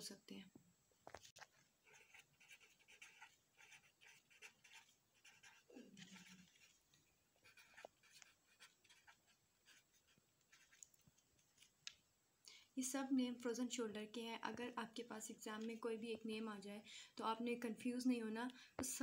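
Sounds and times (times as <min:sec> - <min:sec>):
pen scratching on paper: 0:01.2 - 0:06.8, 0:07.4 - 0:10.9.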